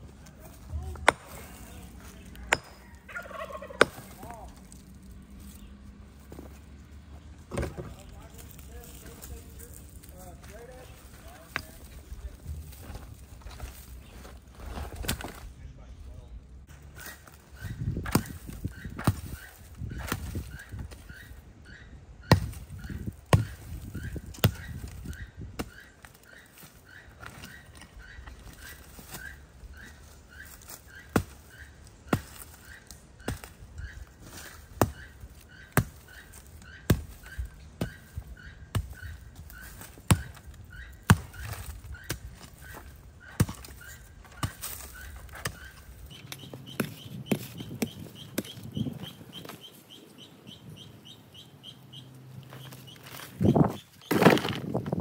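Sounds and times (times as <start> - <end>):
bird chirping: 0.3 - 14.5, 15.7 - 54.6
concrete being struck hard: 2.3 - 2.9
higher bird chirp: 16.2 - 54.4.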